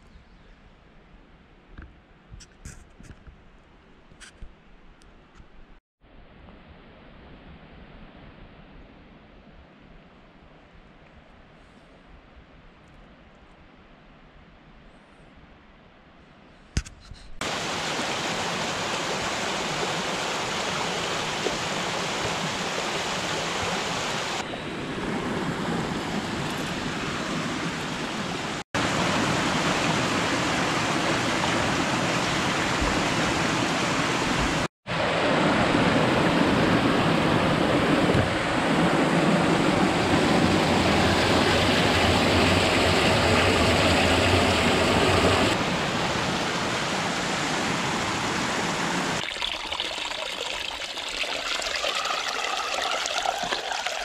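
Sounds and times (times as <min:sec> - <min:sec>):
creek rushing over rocks: 0:17.4 - 0:24.5, 0:25.2 - 0:54.0.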